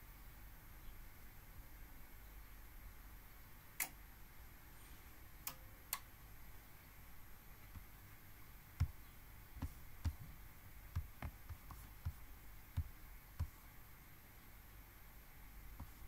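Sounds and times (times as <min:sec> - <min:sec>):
faint steady hiss: 0:00.0 - 0:16.0
computer mouse clicking: 0:10.9 - 0:13.6.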